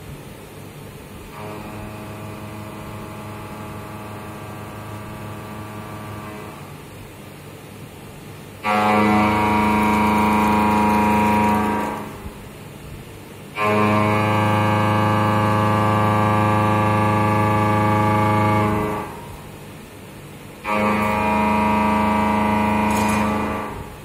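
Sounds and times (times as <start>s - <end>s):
machine running noise: 1.0s - 7.1s, 8.5s - 12.8s, 13.5s - 24.0s
milling cutter buzzing into metal: 8.7s - 12.3s, 20.7s - 23.8s.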